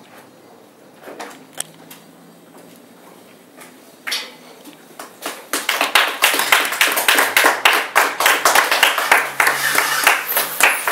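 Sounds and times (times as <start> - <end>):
audience clapping: 5.0 - 10.9.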